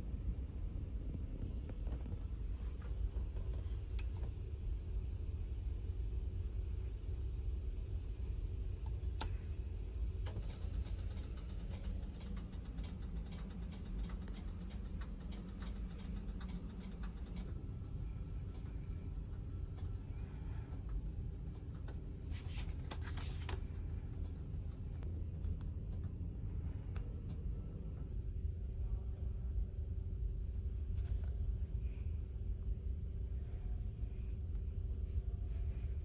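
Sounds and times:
train rumbling inside cabin: 0:00.0 - 0:36.0
faint ticks and rattles: 0:08.7 - 0:29.1.

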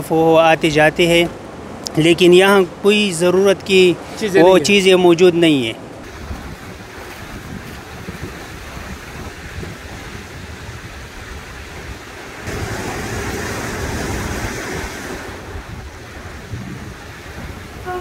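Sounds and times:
rush of fast river water: 0:00.0 - 0:18.0
wind buffeting microphone: 0:05.8 - 0:18.0.

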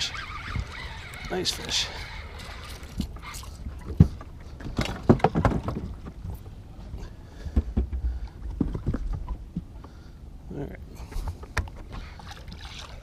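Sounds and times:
knocks against boat: 0:03.9 - 0:06.3.

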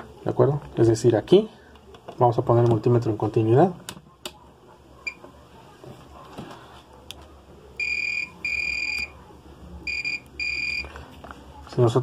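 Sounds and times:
multimeter continuity beeps: 0:07.8 - 0:09.2, 0:09.8 - 0:10.9.

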